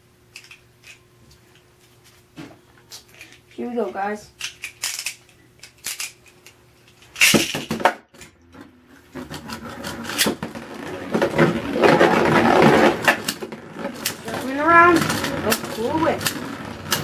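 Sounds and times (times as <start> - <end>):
spinning tops rattling on plastic: 3.2 - 7.8, 9.4 - 17.0
ripcord zip and clatter: 9.2 - 17.0.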